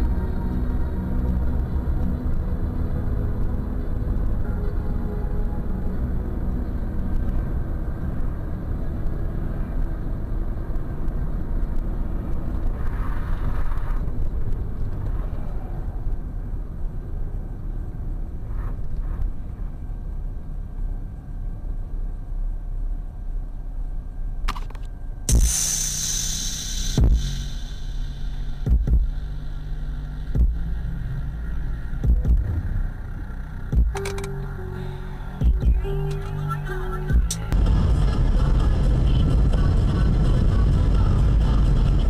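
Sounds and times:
car engine and tyre rumble: 0:00.0 - 0:42.0
truck passing: 0:25.3 - 0:42.0.

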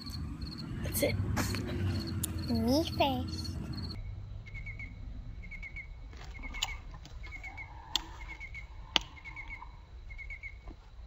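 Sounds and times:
low rumble: 0:00.0 - 0:06.2
crickets chirping: 0:00.0 - 0:11.0
sharp clicks: 0:06.2 - 0:08.2.

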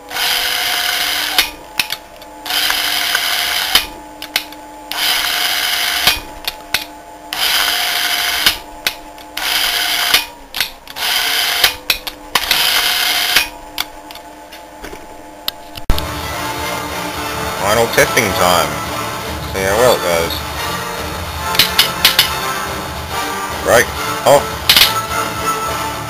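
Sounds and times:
electric motor running: 0:00.0 - 0:06.6, 0:07.3 - 0:14.2.

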